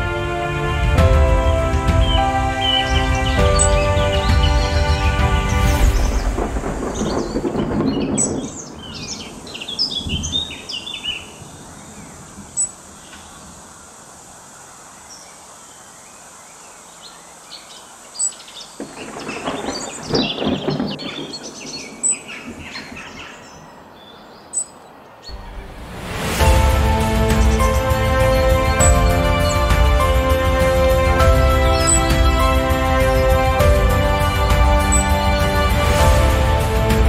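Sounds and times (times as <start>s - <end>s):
birds chirping: 1.1s - 37.0s
surf washing over rocks: 4.8s - 9.6s.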